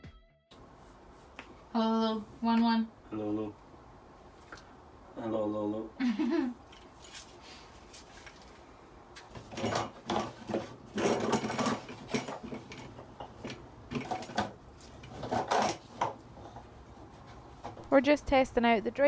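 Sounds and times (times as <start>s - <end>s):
plastic hose scraping and rattling: 9.2s - 17.9s.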